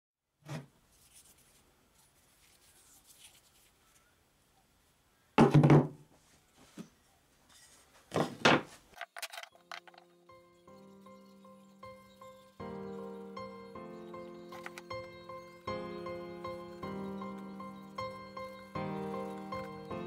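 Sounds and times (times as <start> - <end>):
music: 9.5 - 20.0.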